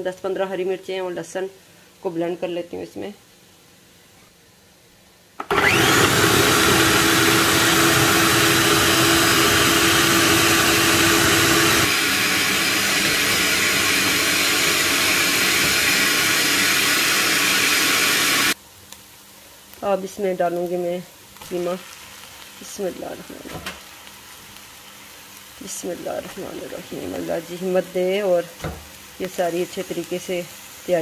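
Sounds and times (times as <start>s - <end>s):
food processor motor whining: 5.4s - 18.6s
even hiss: 18.5s - 31.0s.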